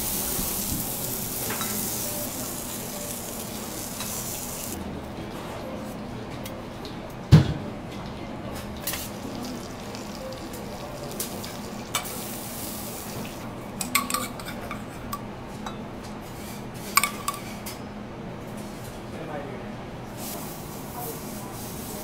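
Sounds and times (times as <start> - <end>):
sizzling on a griddle: 0.0 - 4.8, 8.9 - 13.4
metal pots and spoons clinking: 13.8 - 14.9.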